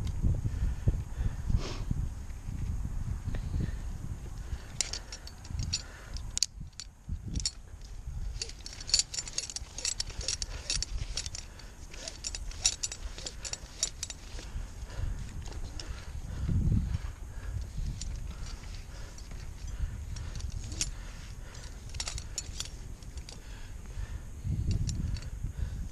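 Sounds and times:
light metallic clicks and clinks: 4.4s - 16.1s, 17.4s - 23.6s, 24.5s - 25.4s.

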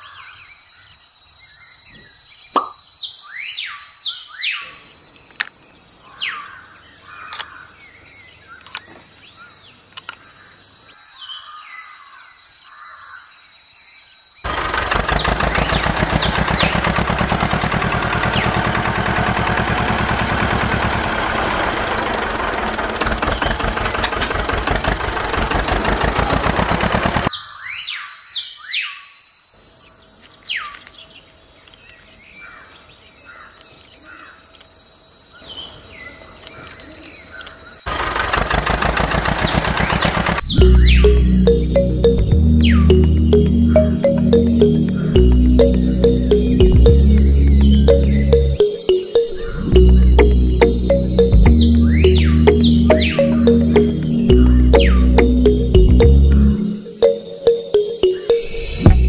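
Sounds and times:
birds chirping: 14.4s - 27.7s, 35.4s - 59.0s
small motor rattling: 14.5s - 27.3s, 37.9s - 40.5s.

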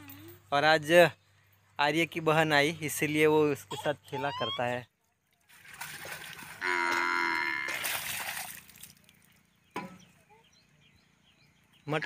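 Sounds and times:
cow mooing: 6.6s - 7.8s.

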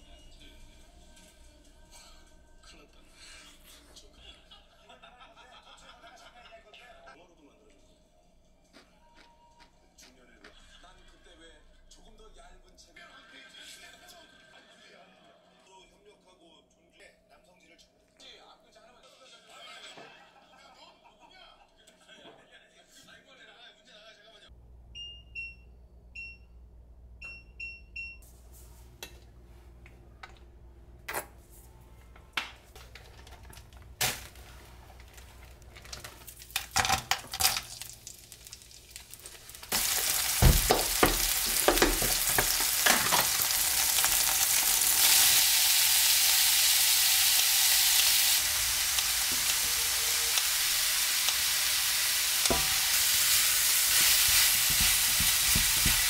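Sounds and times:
kitchen utensils clinking: 32.6s - 45.4s, 46.6s - 56.0s
food sizzling in a hot pan: 37.2s - 56.0s.

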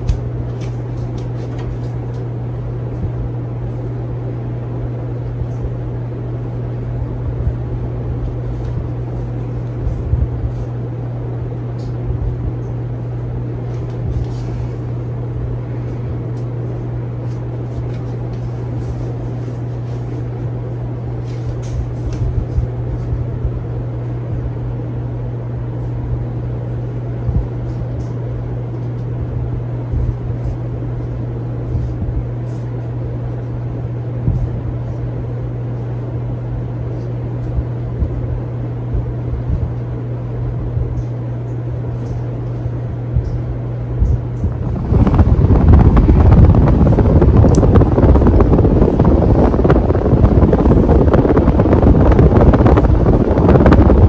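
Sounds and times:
ceiling fan motor hum: 0.0s - 54.0s
low rumbling: 0.0s - 54.0s
rushing air: 44.0s - 54.0s.

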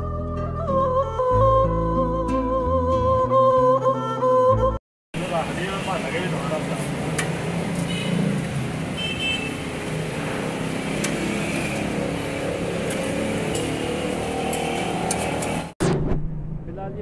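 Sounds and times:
surrounding traffic: 5.1s - 17.0s
vehicle engine and road noise: 5.2s - 17.0s.

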